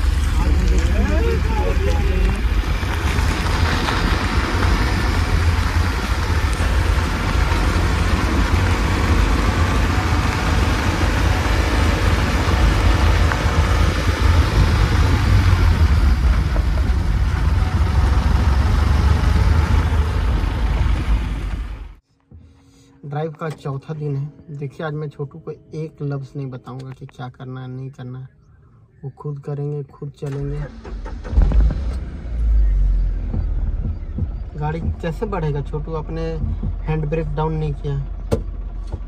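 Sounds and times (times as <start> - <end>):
wind rumble on microphone: 0.0 - 22.0
car engine and tyre noise: 0.0 - 25.4, 28.6 - 39.0.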